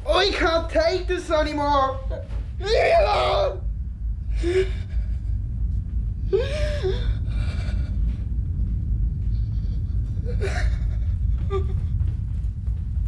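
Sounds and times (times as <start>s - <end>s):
low rumble: 0.0s - 13.0s
man crying out: 2.1s - 3.7s.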